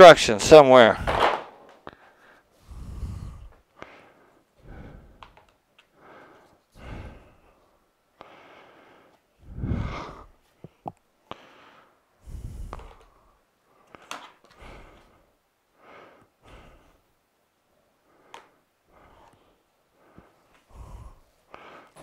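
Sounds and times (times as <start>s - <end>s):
breaths and sighs: 1.8s - 17.1s, 17.9s - 22.0s
plastic parts clicking and knocking: 13.9s - 14.6s.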